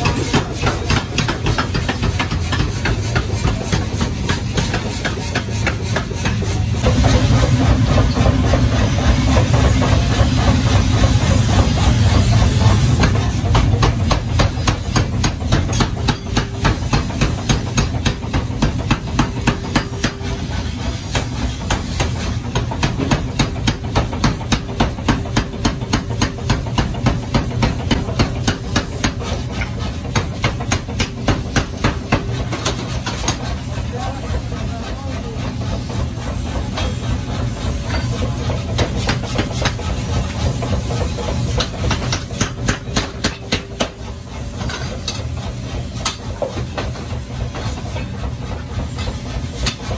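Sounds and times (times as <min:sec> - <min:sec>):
power hammer striking metal: 0:00.0 - 0:33.6, 0:36.8 - 0:49.9
forge furnace hissing: 0:00.0 - 0:49.9.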